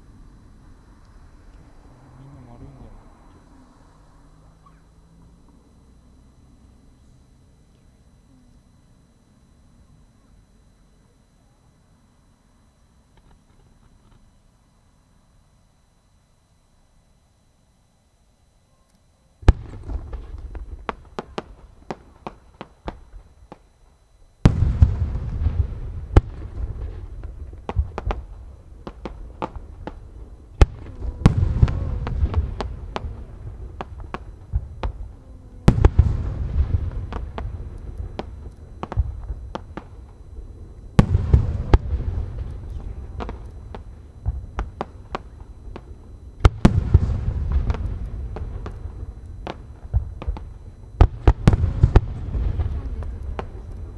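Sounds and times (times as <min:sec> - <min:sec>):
firework booms: 0:19.4 - 0:23.8, 0:24.4 - 0:53.9
firework crackling pops: 0:19.4 - 0:53.9.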